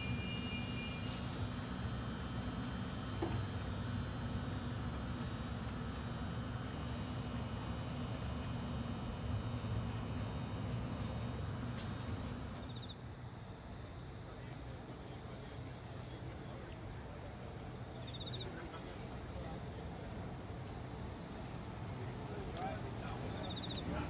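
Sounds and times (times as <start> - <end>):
electric train rumbling: 0.0 - 12.9
crickets chirping: 0.0 - 24.0.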